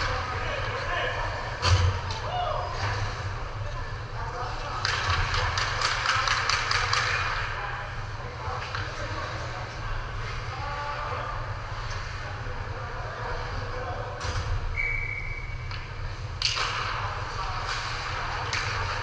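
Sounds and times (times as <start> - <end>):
skates scraping and clatter: 4.6 - 7.5, 16.5 - 19.0
whistle-like tone: 14.8 - 15.6.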